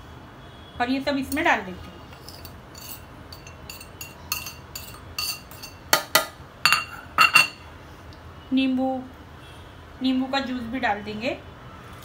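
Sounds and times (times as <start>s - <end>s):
spoon clinking on ceramic plate: 2.1s - 7.6s.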